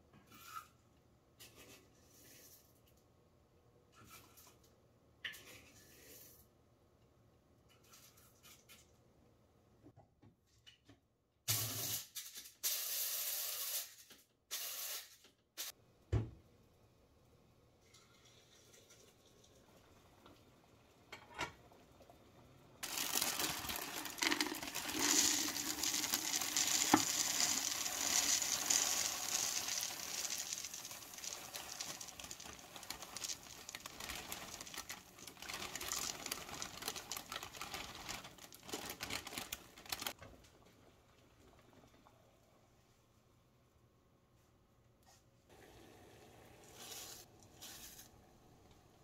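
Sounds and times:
bag crinkling: 22.8s - 40.2s
oats pouring into canister: 22.8s - 40.2s, 46.6s - 48.2s.

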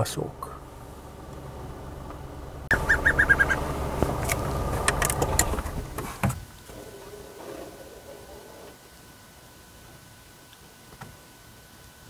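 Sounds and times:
bird piping notes: 2.7s - 4.0s.

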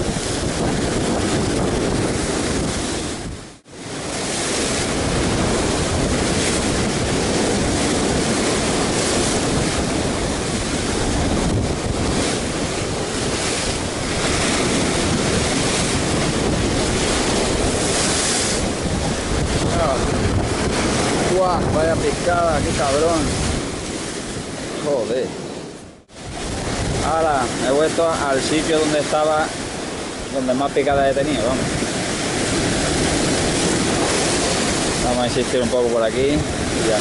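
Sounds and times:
surf breaking against rocks: 0.0s - 37.0s
wind buffeting microphone: 0.0s - 37.0s.

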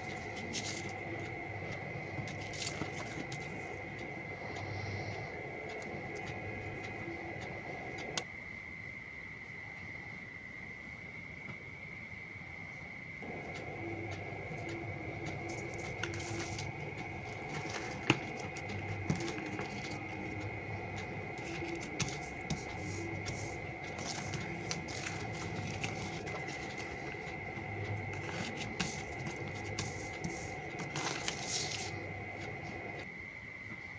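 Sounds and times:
foil paper crinkling: 21.4s - 27.3s, 28.1s - 32.0s.

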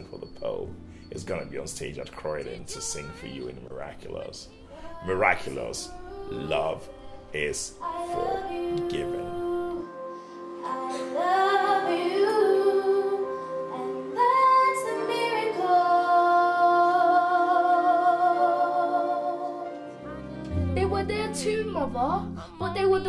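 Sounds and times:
sustained musical backing: 0.0s - 23.0s
woman singing into microphone: 4.5s - 10.0s, 10.6s - 23.0s.

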